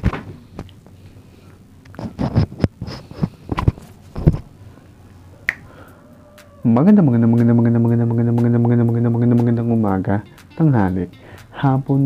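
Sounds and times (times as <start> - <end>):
microphone handling knocks: 3.5 - 4.5.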